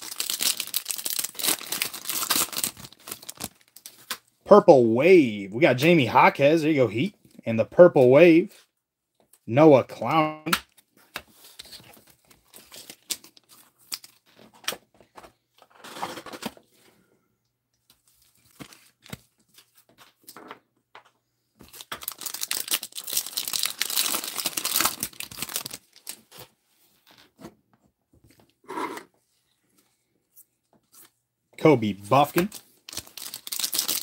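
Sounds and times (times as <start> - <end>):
plastic sleeves crinkling: 0.0 - 4.2, 21.6 - 27.3, 31.8 - 34.0.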